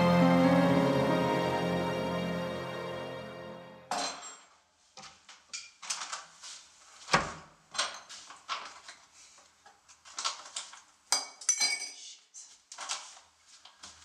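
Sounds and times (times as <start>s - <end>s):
glass clinking: 11.2s - 12.0s.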